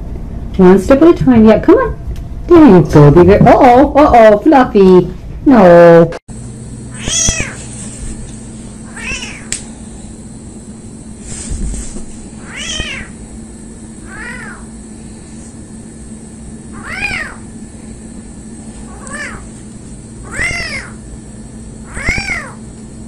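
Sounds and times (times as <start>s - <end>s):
steady low hum: 0.0s - 23.0s
kitten meowing: 6.9s - 7.6s, 8.8s - 9.6s, 12.4s - 13.2s, 14.0s - 14.7s, 16.7s - 17.5s, 18.9s - 19.5s, 20.2s - 21.0s, 21.8s - 22.6s.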